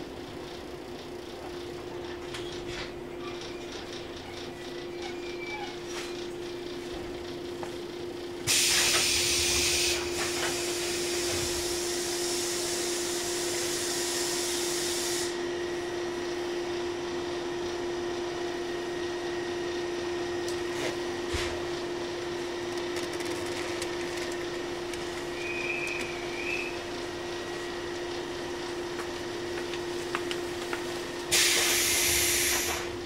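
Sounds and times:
train equipment hum: 0.0 - 33.0
compressed air hissing: 13.5 - 15.4, 31.3 - 32.9.

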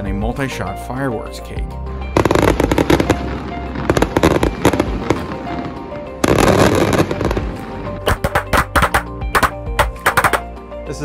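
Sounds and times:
fireworks bangs and crackle: 2.2 - 10.4.

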